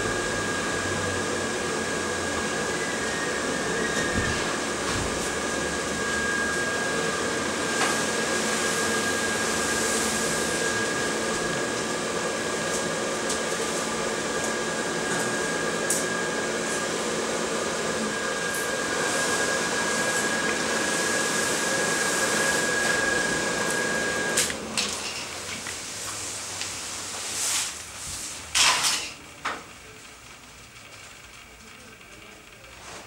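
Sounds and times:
blower fan whooshing hum: 0.0s - 33.0s
thin steady whine: 0.0s - 33.0s.

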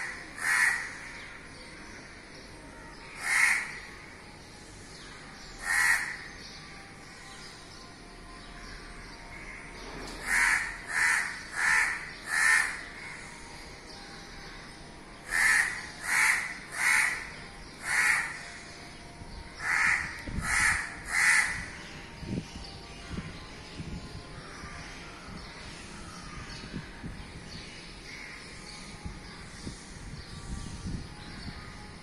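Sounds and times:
crow cawing: 0.0s - 1.1s, 3.2s - 3.8s, 5.6s - 6.3s, 10.2s - 13.3s, 15.3s - 18.5s, 19.6s - 21.8s.

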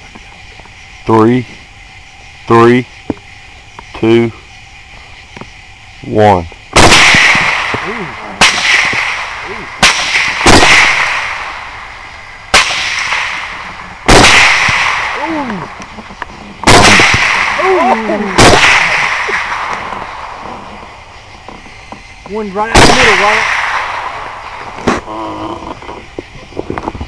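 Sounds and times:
rifle shots echoing: 6.8s - 15.8s, 16.6s - 20.6s, 22.7s - 25.0s.

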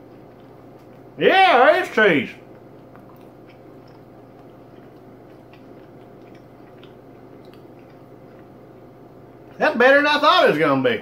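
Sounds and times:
man chewing: 0.0s - 1.2s, 2.4s - 9.6s.

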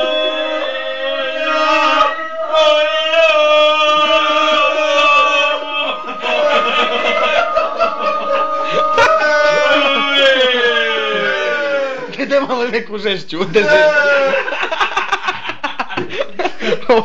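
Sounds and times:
man singing long held notes: 0.0s - 10.3s.

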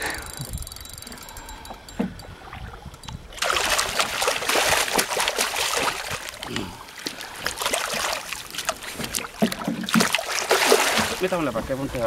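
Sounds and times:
fish thrashing and splashing: 3.3s - 11.3s.

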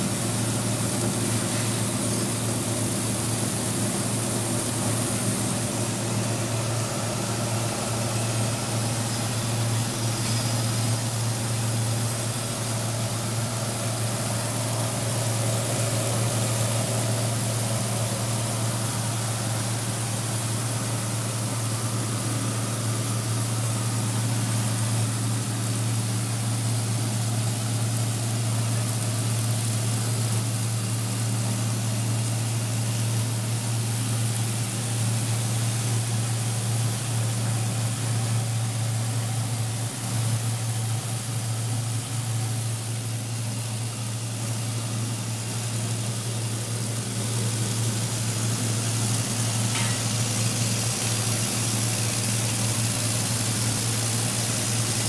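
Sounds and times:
coffee huller humming: 46.0s - 55.0s.

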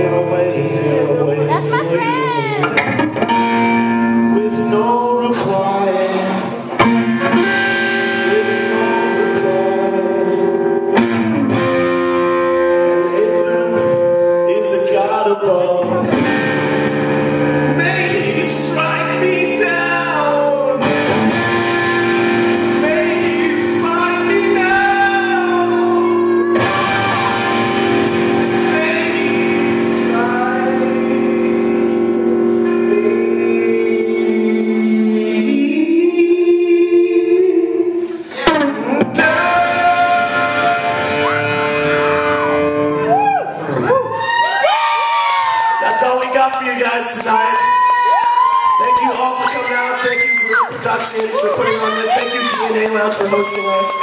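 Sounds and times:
electric bass: 0.0s - 14.7s, 15.8s - 44.1s
man singing lead vocals: 0.0s - 43.1s, 45.9s - 54.0s
electric guitar: 0.0s - 45.9s.

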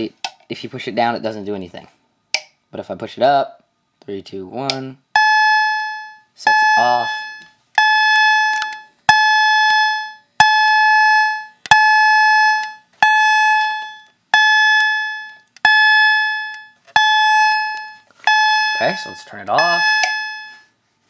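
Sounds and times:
fire alarm chime: 5.1s - 20.8s.

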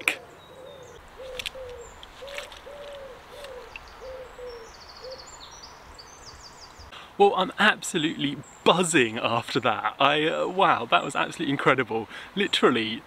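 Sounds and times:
bird calling low notes: 0.0s - 6.9s
faint high-pitched bird song: 0.0s - 7.0s.

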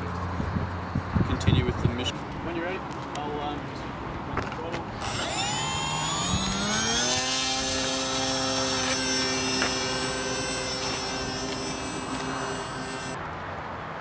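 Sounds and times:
propeller motor at full throttle: 5.0s - 13.2s.

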